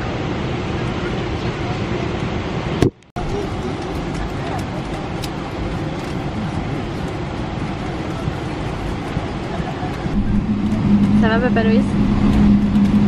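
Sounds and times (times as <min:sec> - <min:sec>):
airliner cabin noise: 0:00.0 - 0:13.0
low hum: 0:02.8 - 0:13.0.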